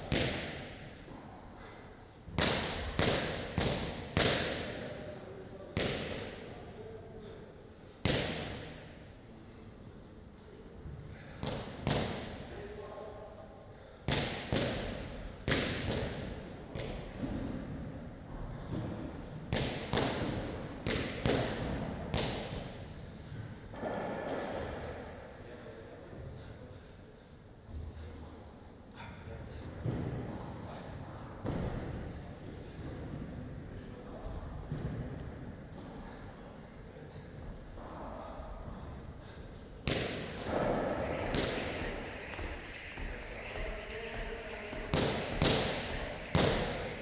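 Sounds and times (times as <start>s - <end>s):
heavy thuds in echoing hall: 0.0s - 1.7s, 2.3s - 5.0s, 11.2s - 12.6s, 14.0s - 25.3s, 29.5s - 30.5s, 31.4s - 33.4s, 37.4s - 47.0s.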